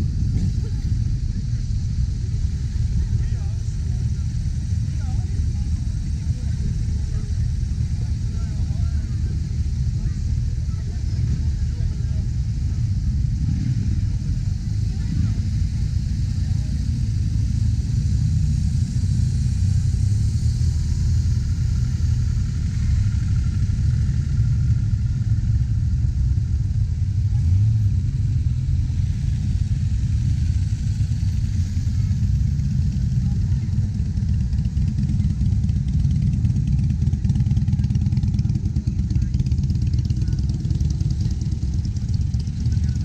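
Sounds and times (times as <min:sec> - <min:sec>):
motorcycle engines rumbling: 0:00.0 - 0:43.0.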